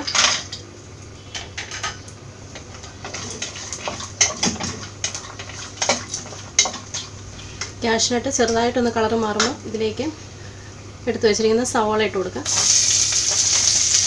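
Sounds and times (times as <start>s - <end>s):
light sizzle: 12.2s - 14.0s.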